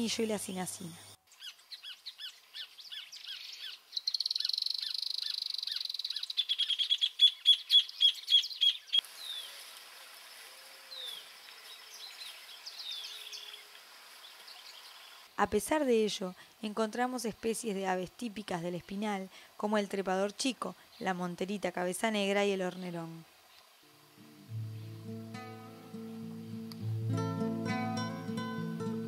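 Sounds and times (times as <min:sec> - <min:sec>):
songbirds chirping and trilling: 0:01.3 - 0:09.5, 0:11.0 - 0:15.3.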